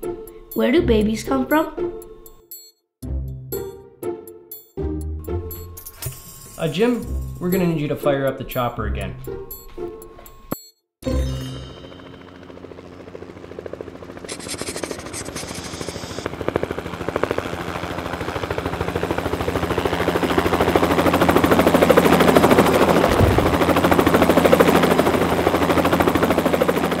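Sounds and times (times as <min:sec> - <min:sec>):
helicopter rotor chopping: 0:11.6 - 0:27.0.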